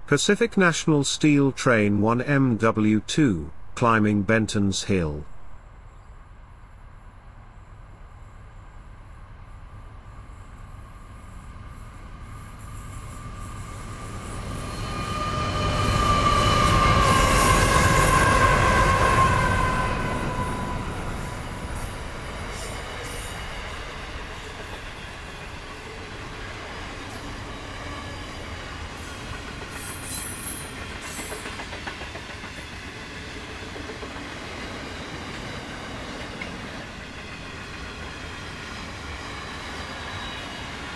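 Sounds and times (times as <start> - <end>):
diesel locomotives passing: 5.4 - 40.9
locomotive whine: 7.4 - 40.9
train wheels clattering on rail: 11.9 - 40.9.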